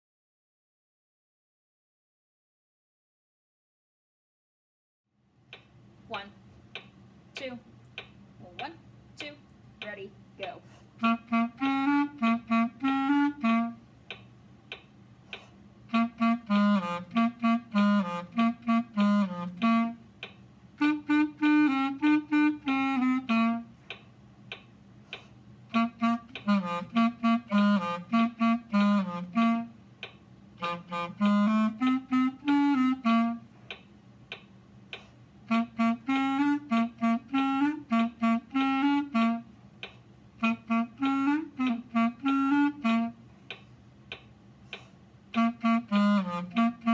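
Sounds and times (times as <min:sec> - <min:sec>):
solo clarinet playing: 0:11.0 - 0:13.9, 0:15.9 - 0:20.1, 0:20.8 - 0:23.8, 0:25.7 - 0:29.9, 0:30.6 - 0:33.5, 0:35.4 - 0:39.6, 0:40.4 - 0:43.3, 0:45.3 - 0:46.9.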